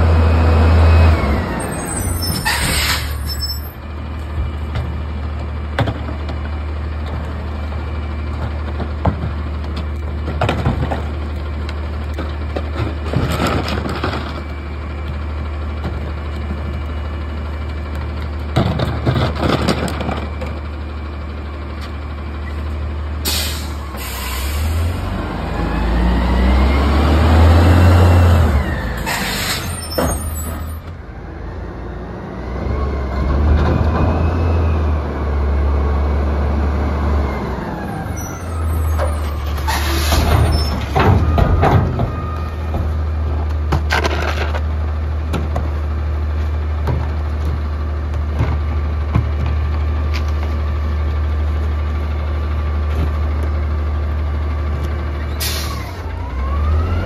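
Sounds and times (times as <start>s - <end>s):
garbage truck engine revving: 0.0s - 3.8s, 23.2s - 50.9s, 51.5s - 57.0s
air brake hisses: 23.3s - 25.0s, 29.0s - 29.9s, 55.4s - 55.9s.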